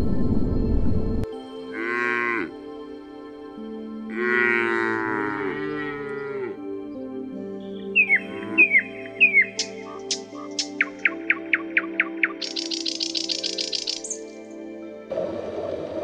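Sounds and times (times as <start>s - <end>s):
soft background music: 0.0s - 16.0s
calf mooing: 1.7s - 2.5s, 4.1s - 6.6s
high falling chirps: 8.0s - 14.3s.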